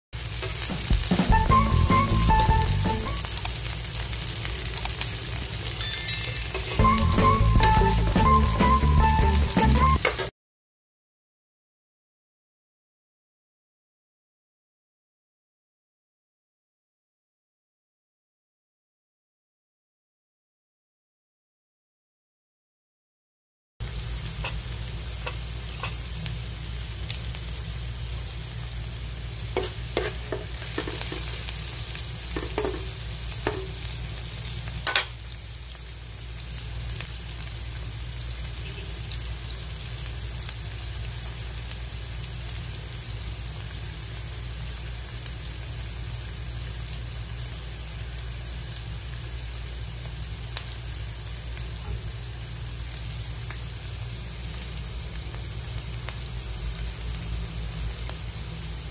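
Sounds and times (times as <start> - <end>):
onion sizzling in hot oil: 0.2 - 10.3, 23.8 - 58.9.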